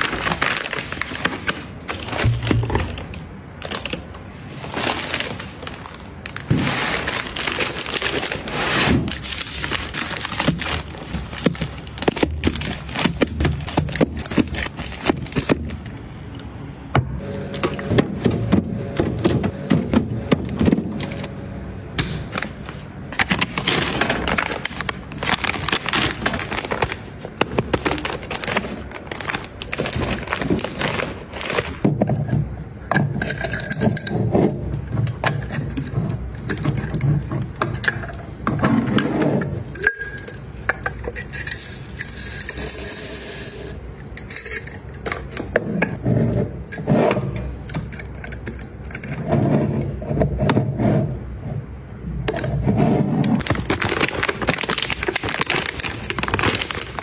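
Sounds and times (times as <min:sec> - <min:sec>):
plastic bottles knocking and rattling: 0:00.0 - 0:04.2, 0:04.8 - 0:15.9, 0:22.0 - 0:39.7, 0:52.3 - 0:57.0
glass jars clinking: 0:35.2 - 0:42.9.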